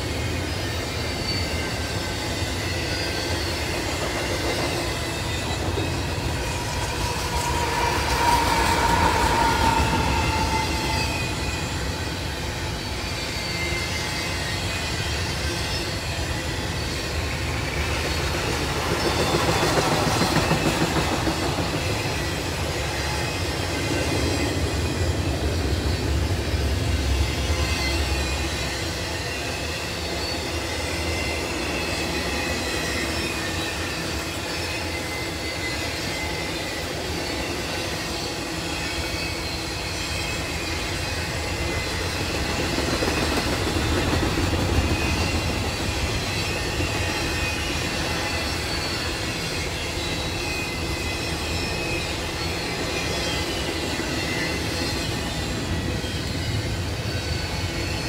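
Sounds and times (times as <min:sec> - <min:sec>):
freight train wheels rumbling on rail: 0:00.0 - 0:58.0
thin wheel squeal: 0:00.4 - 0:17.9.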